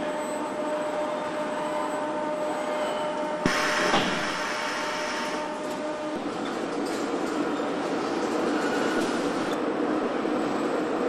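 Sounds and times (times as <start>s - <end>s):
assembly line machinery humming: 0.0s - 9.6s
air hissing: 3.4s - 5.4s.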